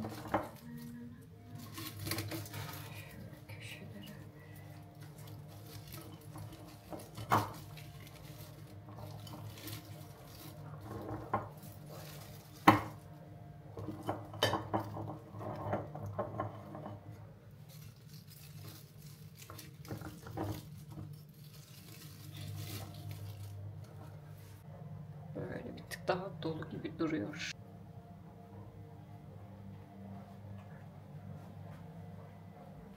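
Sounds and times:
artificial stems rustling: 0:00.0 - 0:24.7
low steady hum: 0:00.0 - 0:32.9
stems clinking against glass vase: 0:01.6 - 0:13.0.

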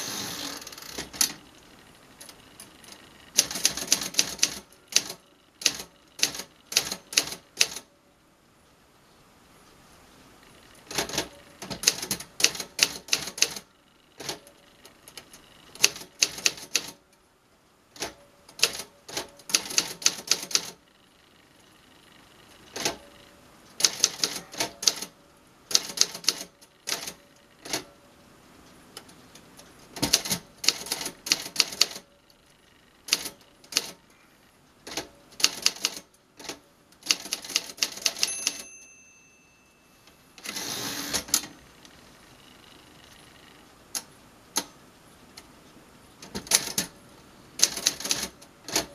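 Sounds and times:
typewriter carriage return: 0:03.4 - 0:07.8, 0:10.9 - 0:13.6, 0:14.2 - 0:17.0, 0:22.7 - 0:23.1, 0:23.8 - 0:25.1, 0:25.7 - 0:27.9, 0:30.0 - 0:32.1, 0:34.9 - 0:38.8, 0:40.4 - 0:41.5, 0:46.2 - 0:46.9, 0:47.6 - 0:48.9
typewriter bell ringing: 0:37.9 - 0:40.6.

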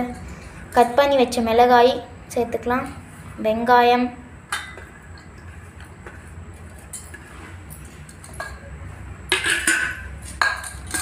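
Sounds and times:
steel plate and bowl scraping: 0:09.3 - 0:11.0.

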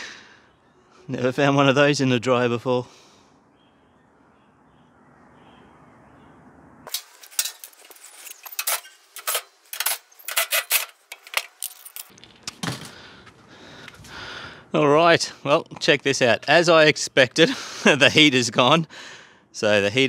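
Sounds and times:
metal parts clinking and rattling: 0:06.9 - 0:12.4.

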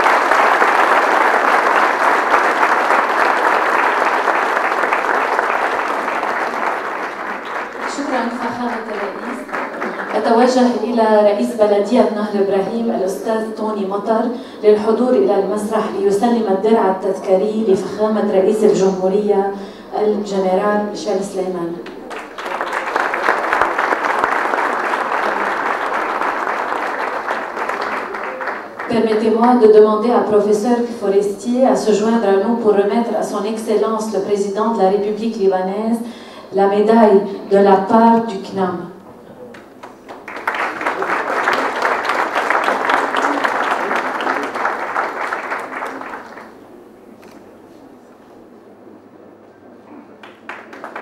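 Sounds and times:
audience applauding: 0:00.0 - 0:10.8, 0:21.8 - 0:29.1, 0:39.4 - 0:46.7, 0:50.2 - 0:51.0.

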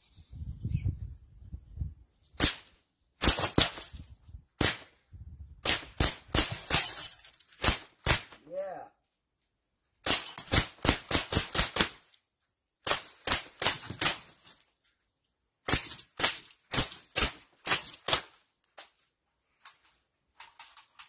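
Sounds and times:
bb gun firing sharp pops: 0:02.4 - 0:03.9, 0:04.6 - 0:05.0, 0:05.6 - 0:06.8, 0:10.0 - 0:12.1, 0:12.8 - 0:14.4, 0:15.7 - 0:18.4.

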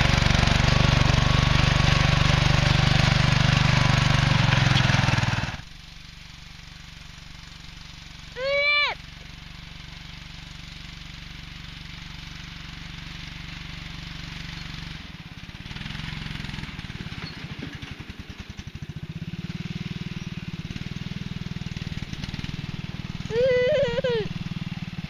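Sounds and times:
small tractor engine under load: 0:00.0 - 0:25.0
person calling out loudly: 0:08.4 - 0:09.0, 0:23.3 - 0:24.3.

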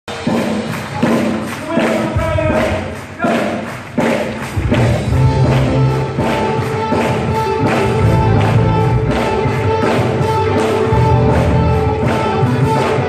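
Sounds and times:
drums keeping steady beat: 0:00.1 - 0:13.0
worship band playing upbeat song: 0:00.1 - 0:13.0
bass line: 0:04.4 - 0:13.0.

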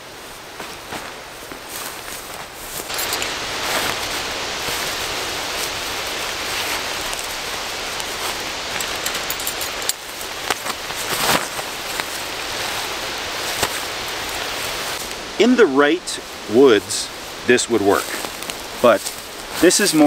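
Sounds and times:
steady outdoor hiss: 0:00.0 - 0:20.0
tent fabric rustling: 0:00.1 - 0:15.2.

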